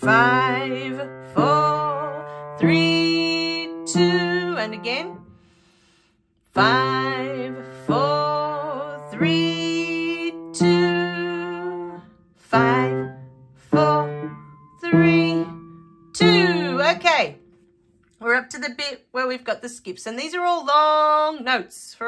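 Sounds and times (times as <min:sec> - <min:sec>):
piano single notes rising: 0:06.6 - 0:18.0.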